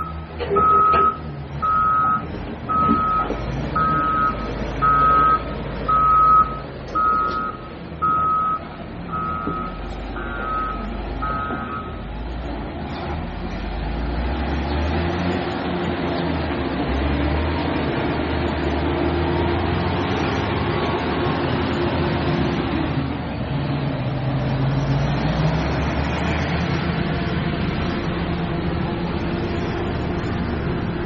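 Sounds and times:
backup alarm beeping: 0.0 - 12.0
diesel machinery rumble: 0.0 - 31.0.

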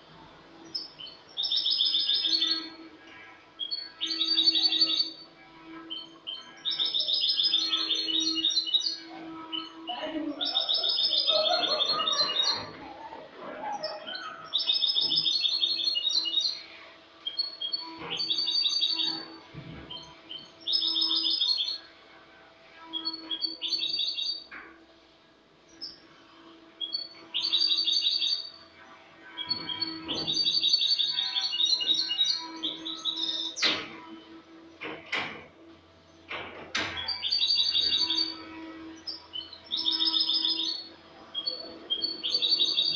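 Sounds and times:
goldfinch singing: 0.6 - 2.8, 3.6 - 5.2, 5.9 - 12.8, 13.7 - 21.9, 22.9 - 24.6, 26.8 - 28.6, 29.4 - 33.9, 36.2 - 42.9.

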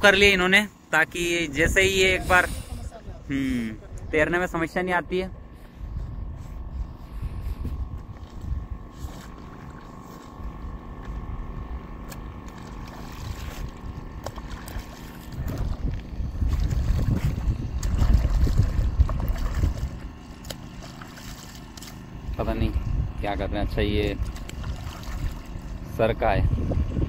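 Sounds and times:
wind buffeting microphone: 1.5 - 20.8, 22.2 - 27.0
hands splashing pond water: 12.0 - 22.2, 24.2 - 25.8.

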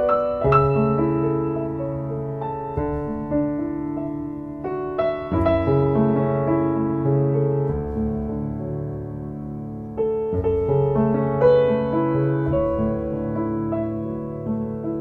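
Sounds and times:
gentle piano chords: 0.0 - 15.0.

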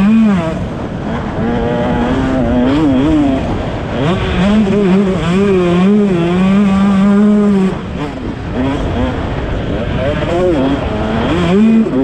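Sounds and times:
motocross bike engine revving: 0.0 - 12.0.

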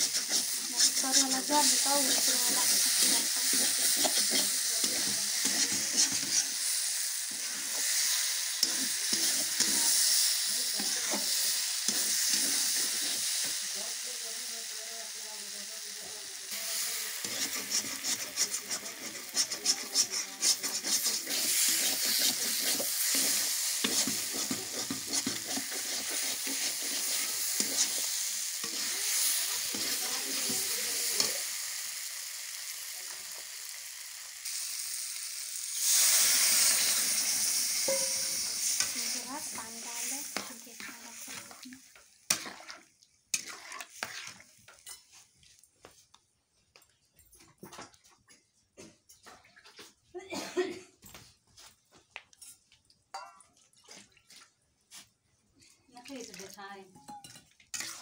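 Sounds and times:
spatula scraping a pan: 0.0 - 13.6, 16.5 - 31.4, 35.7 - 45.3, 57.0 - 58.0
vegetables sizzling in a pan: 0.0 - 45.6, 56.6 - 58.0.

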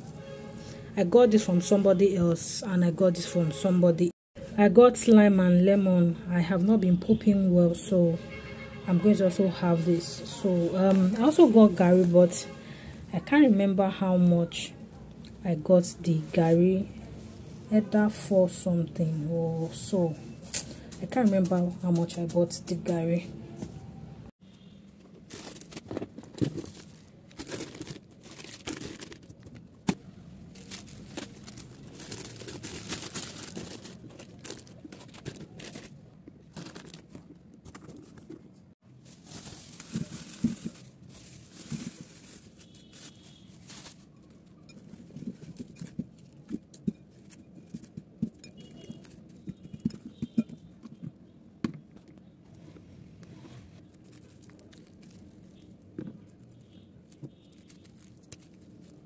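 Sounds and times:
plastic bags rustling and crinkling: 9.5 - 12.6, 15.5 - 23.2, 25.0 - 51.0, 53.8 - 59.0.

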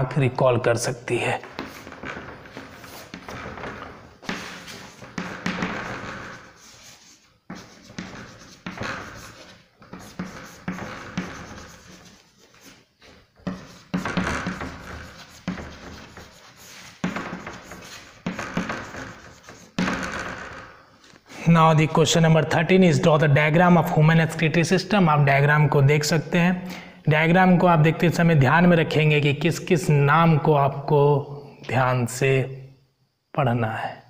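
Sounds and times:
chalk scratching on chalkboard: 2.6 - 3.3, 4.2 - 19.8.

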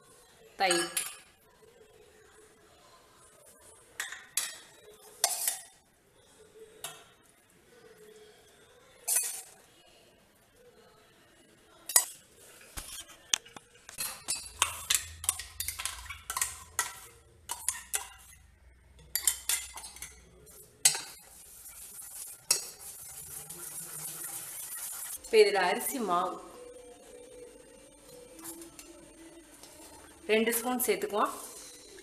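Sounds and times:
batter mixed by hand: 20.8 - 25.2.

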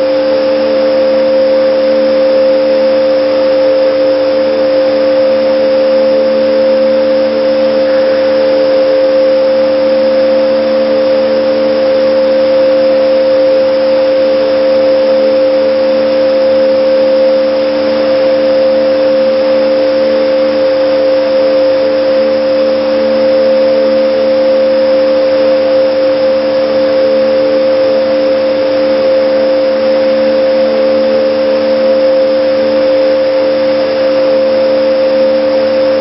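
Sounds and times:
hydraulic machine hum: 0.0 - 16.5, 28.0 - 36.0.

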